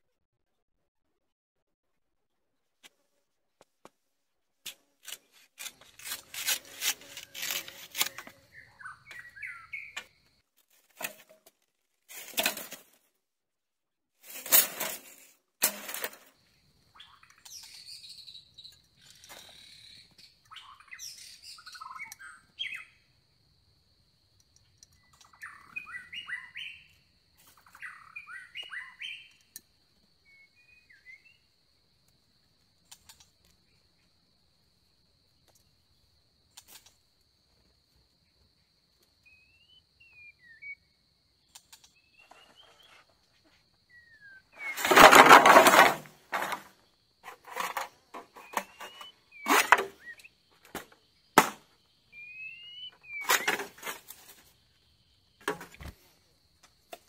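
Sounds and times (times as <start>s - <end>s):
small birds chirping: 7.3s - 10.4s, 16.5s - 23.2s, 24.4s - 31.6s, 38.2s - 44.9s, 46.4s - 56.2s
rustling: 44.6s - 50.0s.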